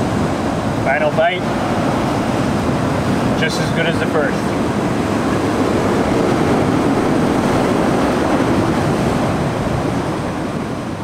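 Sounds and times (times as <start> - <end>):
surf breaking on rocky shore: 0.0 - 11.0.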